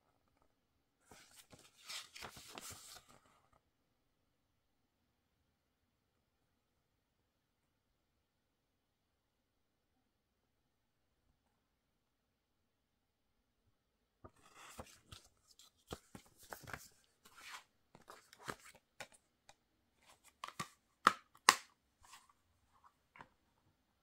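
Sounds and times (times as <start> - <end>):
paper booklet rustling: 1.0 - 3.5, 14.2 - 19.2.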